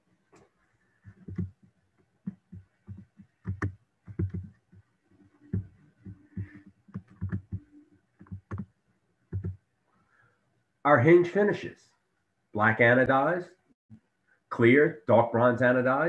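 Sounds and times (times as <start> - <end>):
soft low thumps and clicks: 1.0 - 8.7, 9.3 - 9.6.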